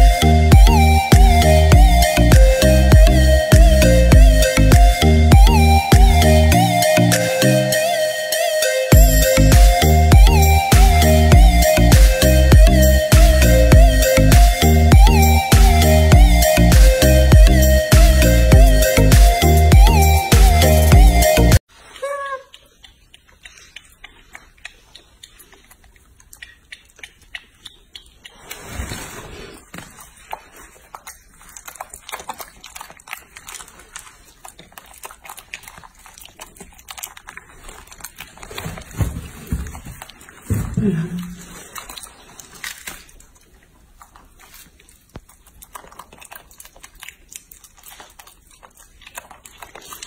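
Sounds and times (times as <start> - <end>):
mouth smacks and clicks: 0.0 - 8.0, 8.9 - 29.0, 29.6 - 38.8, 40.0 - 50.0
banana peel rustling: 27.5 - 50.0
rustle: 28.3 - 32.0.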